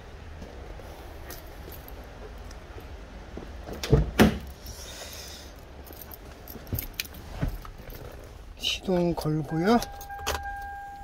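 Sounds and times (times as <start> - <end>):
car keys jangling: 5.4 - 11.0.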